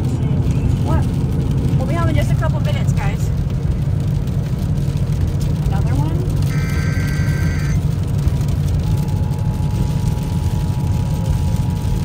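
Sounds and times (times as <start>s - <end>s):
car cabin road rumble: 0.0s - 12.0s
high beeping tones: 6.5s - 7.8s
two-tone alert signal: 6.5s - 7.8s.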